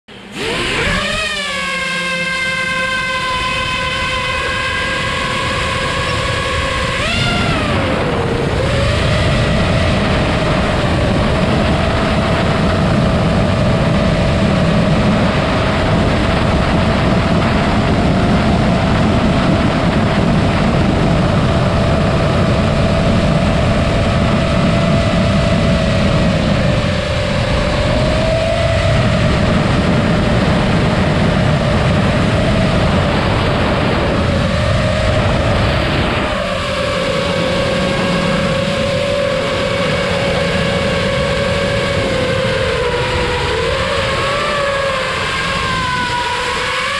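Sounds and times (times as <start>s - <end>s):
drone motors whining: 0.1s - 46.9s
wind buffeting microphone: 0.1s - 46.9s.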